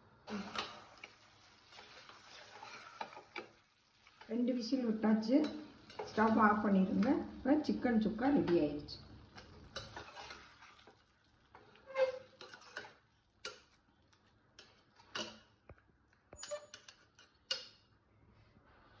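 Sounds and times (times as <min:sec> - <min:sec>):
metal ladle scraping a pot: 0:00.3 - 0:03.5, 0:09.4 - 0:13.6, 0:16.3 - 0:17.7.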